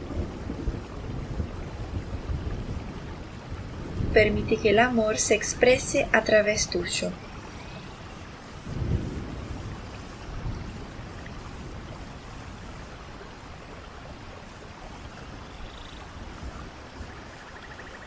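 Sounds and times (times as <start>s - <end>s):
stream flowing: 3.0s - 8.7s, 9.8s - 18.0s.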